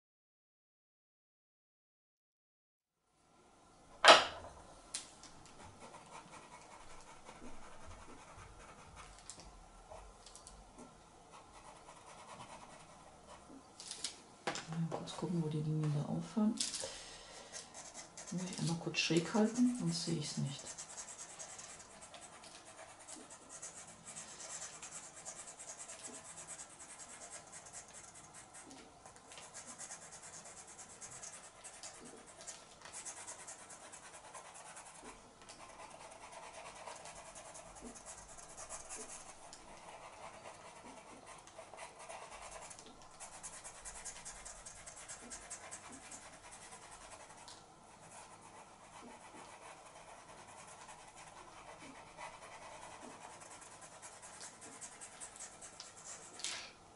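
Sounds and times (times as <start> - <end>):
pencil scratching on paper: 5.6 - 9.2, 11.3 - 13.5, 17.4 - 56.4.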